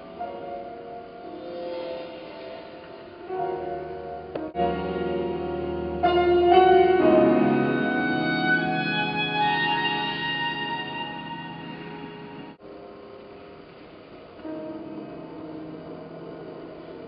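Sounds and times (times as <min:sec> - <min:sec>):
sustained ambient tones: 0:00.0 - 0:17.0.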